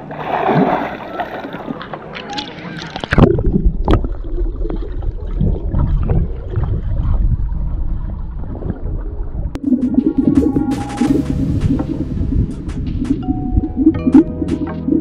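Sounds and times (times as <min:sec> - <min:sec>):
muffled underwater water rush: 0:00.0 - 0:15.0
air bubbles gurgling: 0:00.1 - 0:12.6
steady pitched tone: 0:09.6 - 0:15.0.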